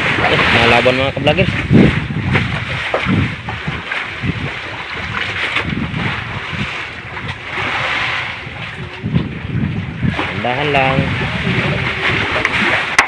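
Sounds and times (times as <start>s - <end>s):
sea water washing against boat: 0.0s - 13.0s
wind on microphone: 0.0s - 13.0s.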